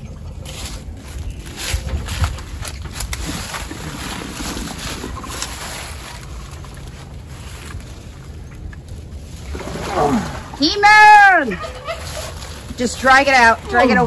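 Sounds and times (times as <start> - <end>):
hands rustling dry leaves: 0.0 - 10.0, 10.8 - 14.0
wind rumbling on microphone: 0.0 - 11.0.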